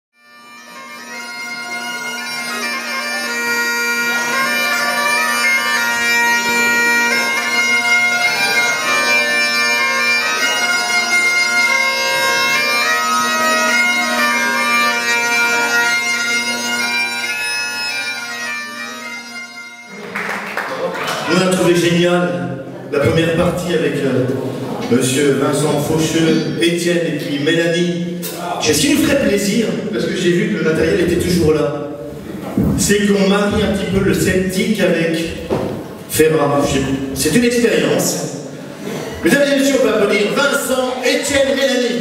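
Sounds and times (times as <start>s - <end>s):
bagpipes playing over drone: 0.2s - 20.1s.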